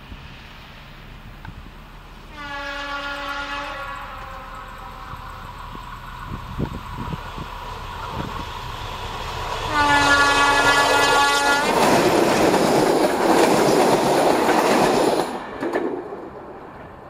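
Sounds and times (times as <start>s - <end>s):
locomotive engine noise: 0.0s - 17.0s
locomotive horn blast: 2.3s - 5.5s, 9.6s - 11.8s
wheels clattering over rail joints: 11.6s - 17.0s.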